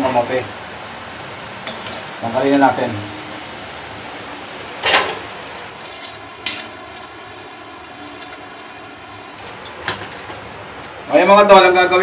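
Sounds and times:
oil sizzling in wok: 0.0s - 12.0s
metal utensil clatter: 1.6s - 2.1s.

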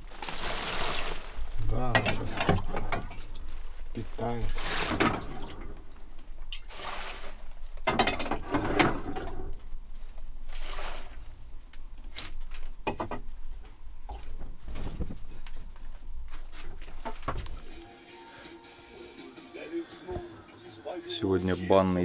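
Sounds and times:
plastic bag crinkling: 0.0s - 5.0s.

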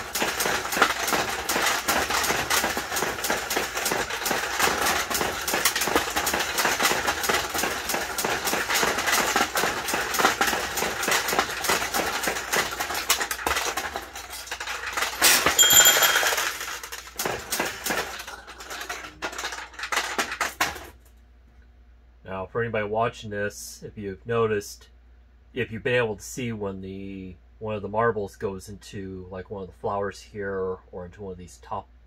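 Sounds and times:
steel balls clattering: 0.0s - 21.1s
bell ringing: 15.4s - 16.4s.

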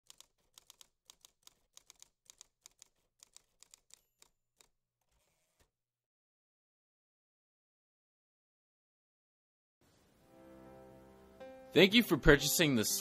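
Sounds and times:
typewriter keystrokes clacking: 0.0s - 4.7s.

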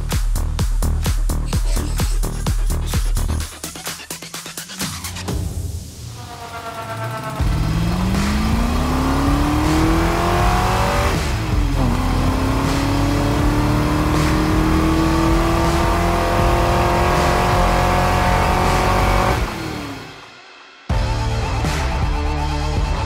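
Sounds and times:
car engine revving hard: 6.2s - 20.2s.

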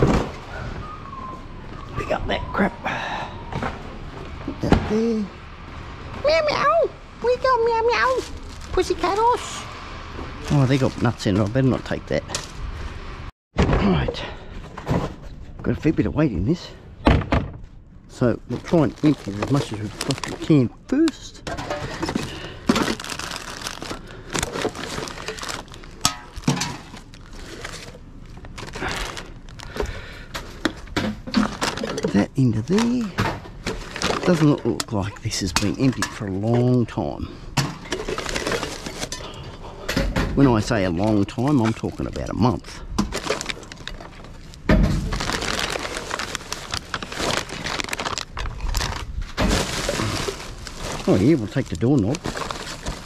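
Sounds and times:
plastic bags rustling: 7.9s - 9.6s, 10.4s - 12.0s, 18.1s - 20.8s, 21.5s - 36.4s, 37.8s - 39.4s, 40.4s - 53.0s
tins and bottles clattering: 18.5s - 20.6s, 21.5s - 36.8s, 37.6s - 42.4s, 43.0s - 53.0s.

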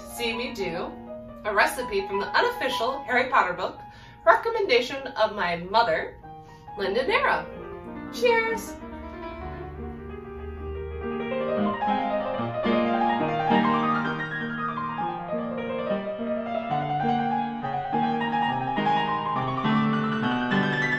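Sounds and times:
classical piano music: 0.0s - 20.9s.

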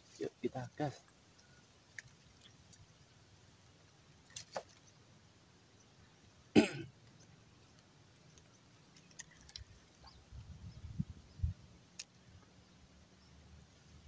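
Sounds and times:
faint clicks: 1.0s - 2.9s, 7.0s - 10.2s, 11.8s - 12.6s
man clearing throat: 6.6s - 6.9s.

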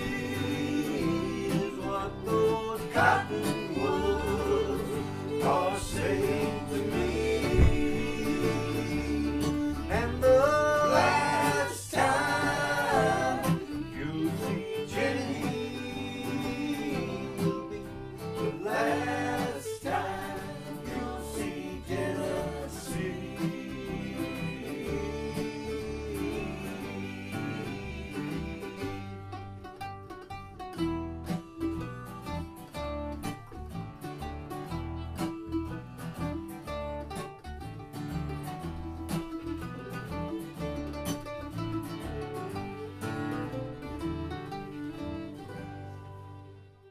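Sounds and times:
person singing: 0.0s - 29.5s
bluegrass band playing: 0.0s - 46.9s.

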